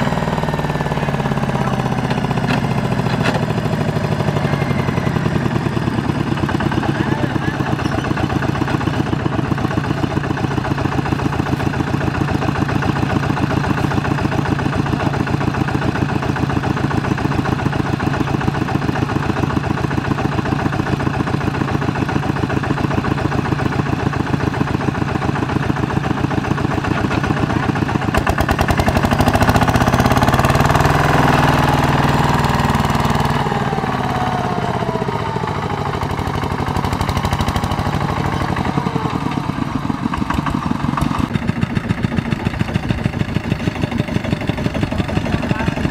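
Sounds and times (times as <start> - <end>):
diesel tractor engine running: 0.0 - 45.9.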